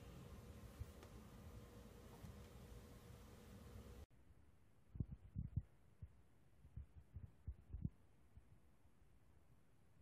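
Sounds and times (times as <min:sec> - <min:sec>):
muffled low thumps: 0:05.0 - 0:07.9.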